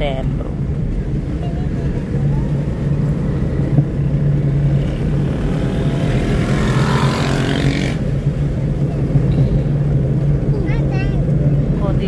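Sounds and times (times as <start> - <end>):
car interior engine drone: 0.0 - 12.0
loud rushing noise: 2.5 - 9.2.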